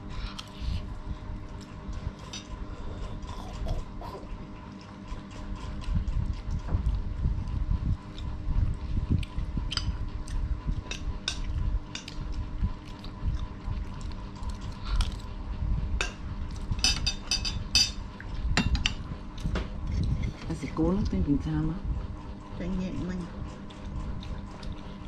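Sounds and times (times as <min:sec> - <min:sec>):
low steady rumble: 0:00.0 - 0:25.0
spoons clinking on plates: 0:16.8 - 0:18.0.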